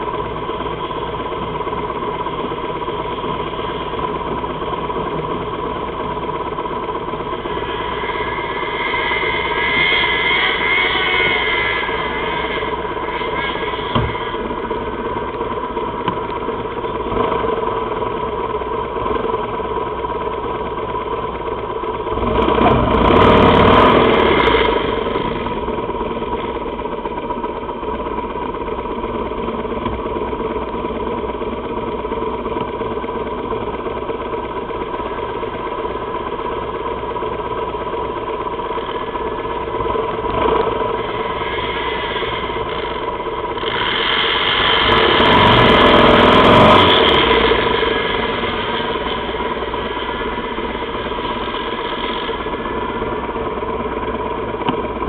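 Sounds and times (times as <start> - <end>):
motorcycle engine idling and revving: 0.0 - 55.0.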